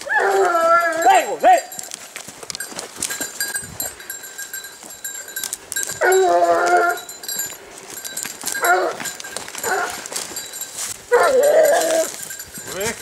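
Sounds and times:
hound baying: 0:00.0 - 0:01.9, 0:05.8 - 0:07.5, 0:08.4 - 0:10.3, 0:11.0 - 0:12.3
footsteps in undergrowth: 0:00.0 - 0:13.0.

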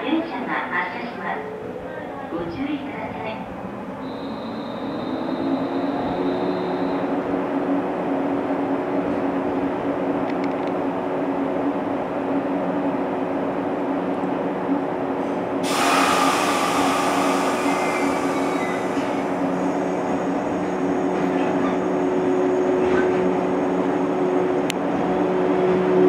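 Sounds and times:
train equipment humming: 0:00.0 - 0:26.0
air brakes hissing: 0:15.2 - 0:20.1.

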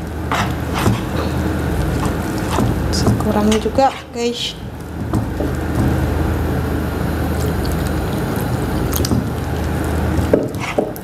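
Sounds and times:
water pouring into batter: 0:07.0 - 0:11.0.

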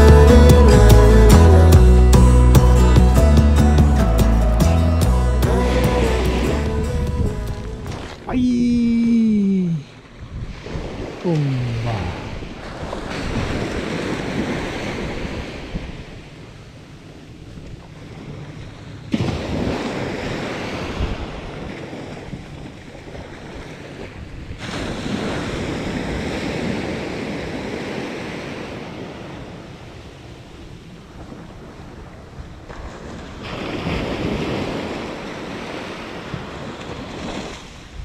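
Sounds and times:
waves breaking on sandy beach: 0:05.5 - 0:38.0
wind rumbling on microphone: 0:06.0 - 0:09.0, 0:10.0 - 0:38.0.

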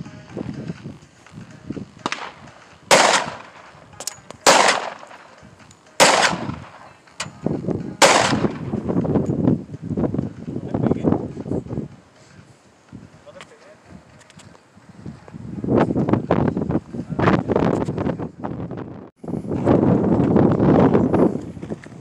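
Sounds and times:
handgun shots with echo: 0:02.0 - 0:05.4, 0:06.0 - 0:07.3, 0:08.0 - 0:08.7.

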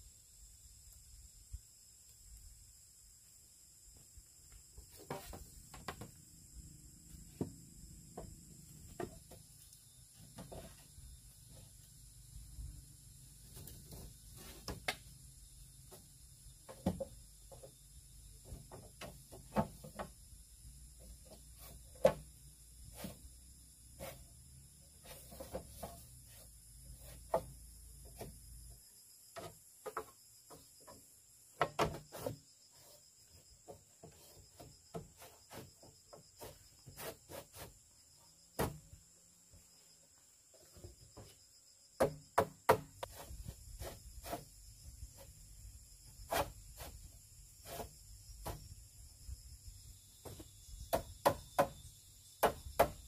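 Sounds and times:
insects calling: 0:00.0 - 0:53.0
bamboo poles knocking and clattering: 0:04.9 - 0:06.2, 0:07.3 - 0:10.9, 0:13.5 - 0:15.1, 0:15.9 - 0:17.8, 0:18.4 - 0:20.3, 0:21.0 - 0:22.4, 0:25.1 - 0:28.4, 0:29.3 - 0:32.4, 0:33.3 - 0:37.7, 0:38.6 - 0:39.0, 0:42.0 - 0:44.5, 0:47.6 - 0:48.8, 0:50.2 - 0:51.8, 0:52.4 - 0:53.0.

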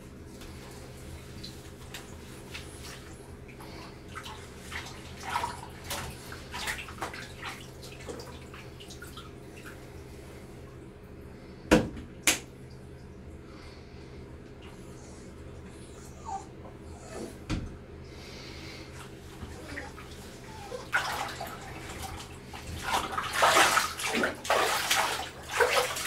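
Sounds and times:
bathtub water splashing: 0:00.0 - 0:11.0, 0:17.2 - 0:26.0
steady low hum: 0:00.0 - 0:26.0.

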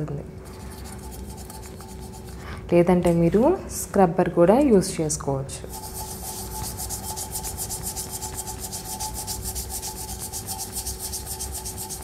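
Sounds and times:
scouring pad scrubbing metal: 0:05.7 - 0:12.0.

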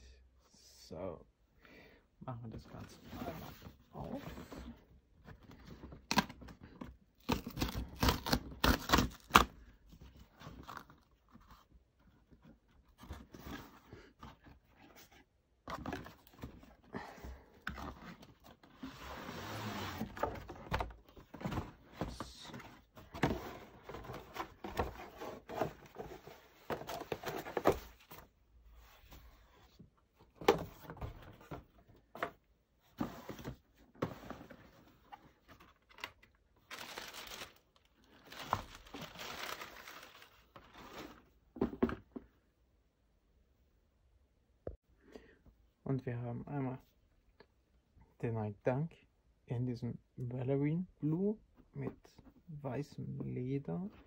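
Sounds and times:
cardboard tearing: 0:07.2 - 0:09.5.

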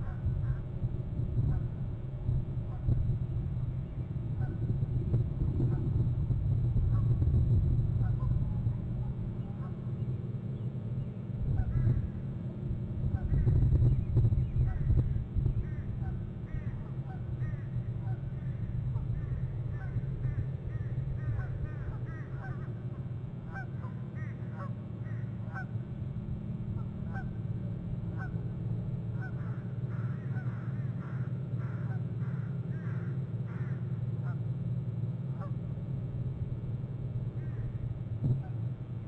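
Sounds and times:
low rumble: 0:00.0 - 0:10.2
birds honking: 0:15.6 - 0:25.8, 0:26.8 - 0:27.4, 0:29.2 - 0:34.4.

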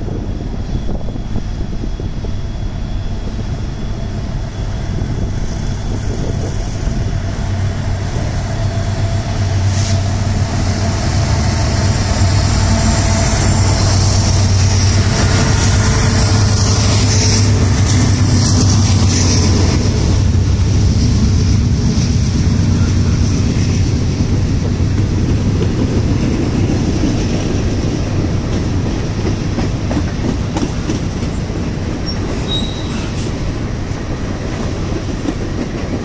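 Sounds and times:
diesel locomotive engines droning: 0:00.0 - 0:36.0
train wheels rushing on rails: 0:00.0 - 0:36.0.

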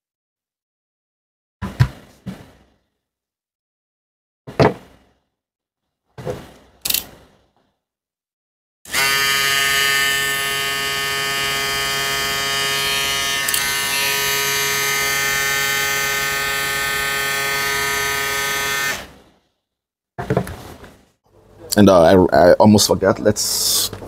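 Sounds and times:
hair clipper buzzing: 0:08.9 - 0:19.1.

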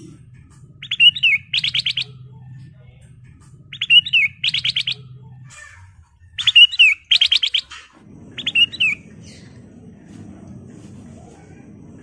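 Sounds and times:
bird singing: 0:00.0 - 0:09.8
faint low hum: 0:00.0 - 0:12.0
warbling whistle: 0:00.8 - 0:02.1, 0:08.4 - 0:09.0.

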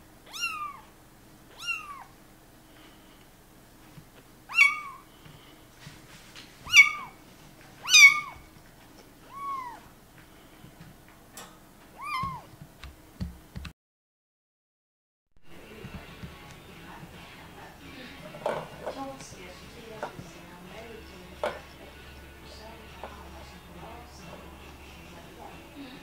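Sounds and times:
kitten meowing: 0:00.3 - 0:00.9, 0:01.5 - 0:02.1, 0:04.5 - 0:05.0, 0:06.6 - 0:07.2, 0:07.8 - 0:08.5, 0:09.2 - 0:09.9, 0:11.9 - 0:12.5.

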